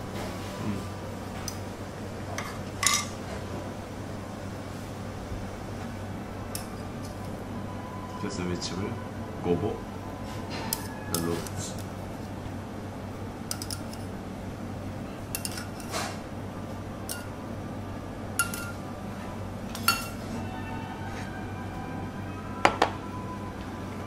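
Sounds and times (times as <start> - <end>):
steady low hum: 0.0 - 24.0
crockery and utensils clinking: 2.3 - 3.2, 10.5 - 11.8, 13.5 - 14.1, 15.3 - 16.2, 17.0 - 17.4, 18.4 - 18.8, 19.7 - 20.5.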